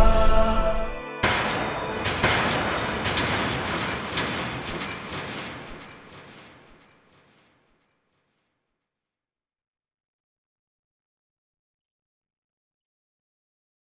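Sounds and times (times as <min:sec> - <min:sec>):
shattering crash: 0:01.2 - 0:08.0.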